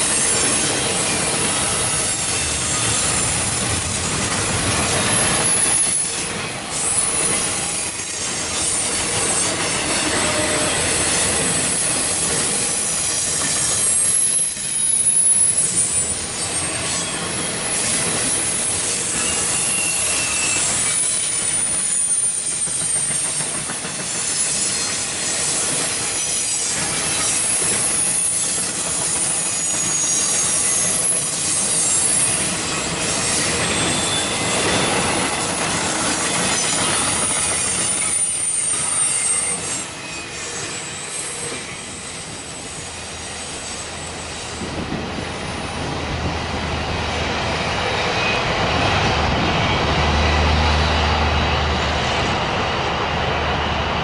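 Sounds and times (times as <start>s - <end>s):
freight train wheels clattering: 0.0s - 52.9s
wheel squeal: 4.4s - 23.5s, 24.1s - 44.1s.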